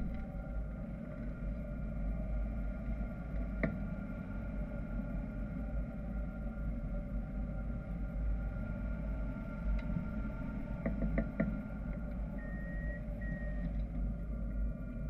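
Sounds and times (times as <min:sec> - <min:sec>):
wind rumble over camera: 0:00.0 - 0:15.0.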